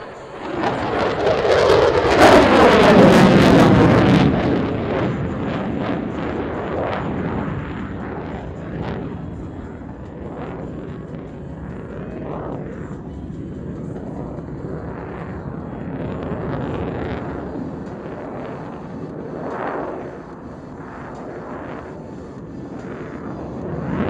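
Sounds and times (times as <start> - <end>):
jet engines roaring: 0.0 - 24.0.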